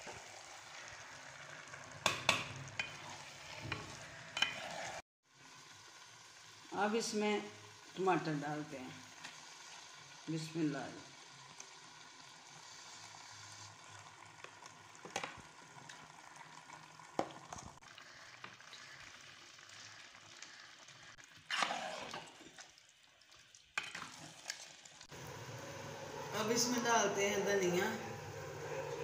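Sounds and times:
food sizzling in oil: 0:00.0 - 0:29.0
spoon scraping pot: 0:02.1 - 0:05.0.

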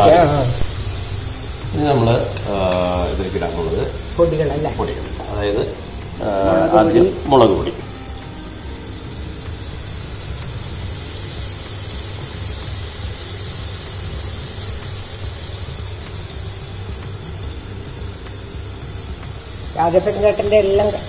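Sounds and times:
low rumble: 0:00.0 - 0:10.8
onions sizzling in oil: 0:00.0 - 0:21.0.

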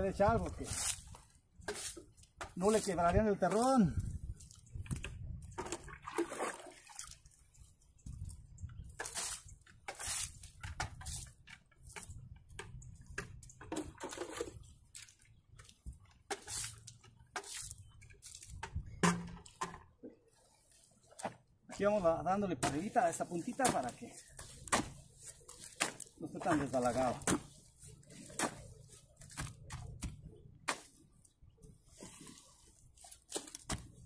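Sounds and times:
feet squelching through mud: 0:00.4 - 0:11.3, 0:22.6 - 0:30.1
water sloshing in plastic bucket: 0:00.6 - 0:21.8, 0:22.6 - 0:34.0.

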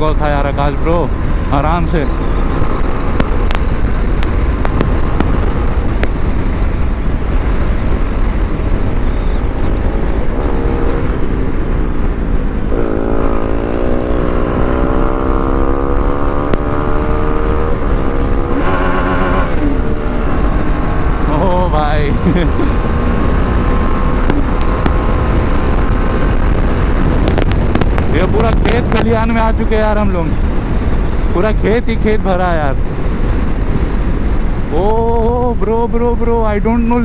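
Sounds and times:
wind rush on microphone: 0:00.0 - 0:37.0
motorcycle engine running: 0:02.0 - 0:29.5.

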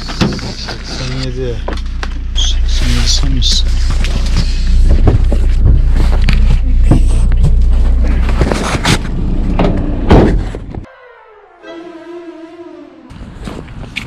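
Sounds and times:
steady low rumble: 0:00.0 - 0:10.9
van door shutting: 0:09.5 - 0:10.9.

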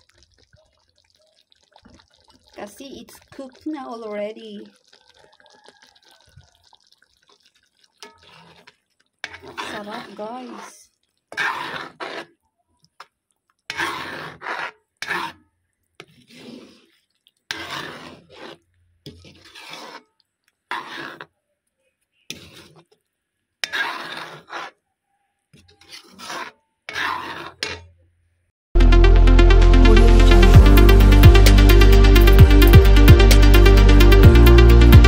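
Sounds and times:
metal spoon scraping a pot: 0:07.8 - 0:12.4, 0:13.6 - 0:15.4, 0:16.0 - 0:21.4, 0:22.1 - 0:23.0, 0:23.6 - 0:24.8, 0:25.5 - 0:28.0.

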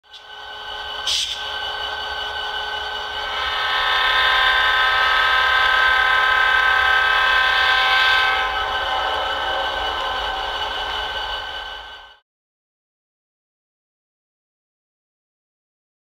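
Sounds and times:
locomotive air horn chord: 0:02.2 - 0:12.2.

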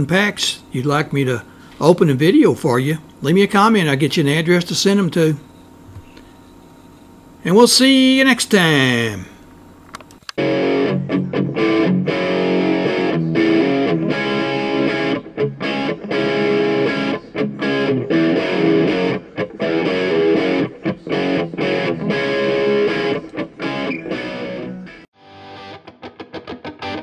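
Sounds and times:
distorted electric guitar music: 0:09.9 - 0:27.0.

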